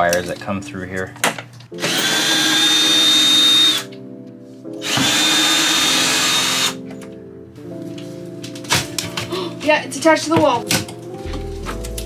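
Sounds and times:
background music: 0.0 - 12.0
cordless drill whining: 1.8 - 3.9, 4.8 - 6.8.

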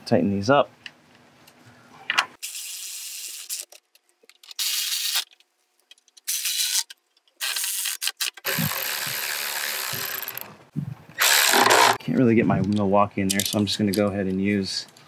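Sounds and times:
electric ratchet whirring: 6.3 - 10.6, 11.2 - 12.0.

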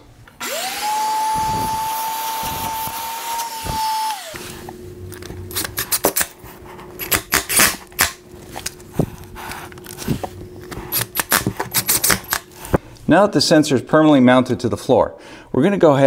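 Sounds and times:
vacuum cleaner running: 0.0 - 5.5
cordless drill driving screws: 0.4 - 4.4.

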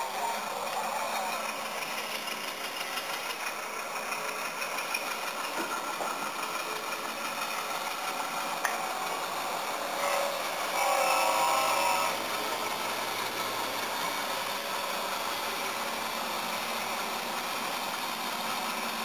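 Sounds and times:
model diesel locomotive engine: 0.0 - 19.0.

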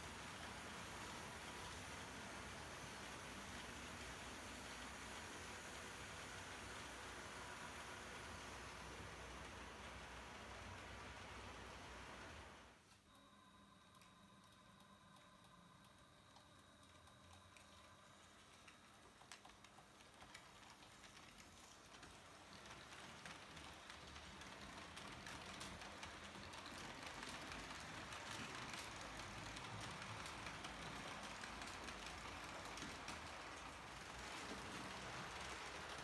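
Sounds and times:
model train rolling on track: 0.0 - 12.7, 14.0 - 36.0
faint clicking of small wheels: 13.9 - 36.0.

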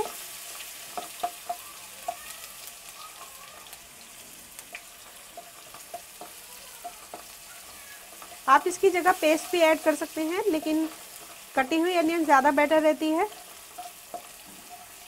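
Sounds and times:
onions sizzling in hot oil: 0.0 - 15.0
spatula ticking against pan: 0.9 - 2.3, 5.2 - 15.0.

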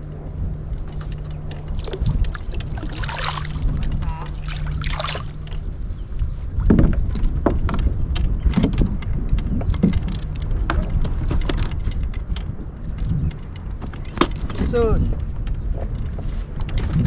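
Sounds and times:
wind rumble on microphone: 0.0 - 17.0
knocks and clicks on kayak: 6.6 - 17.0.

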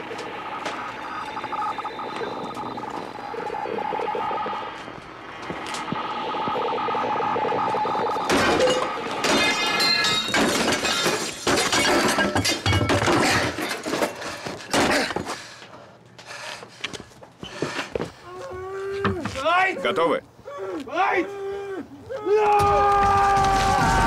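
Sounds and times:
steady hum: 0.0 - 9.6
parts cracking and breaking: 22.5 - 24.0.

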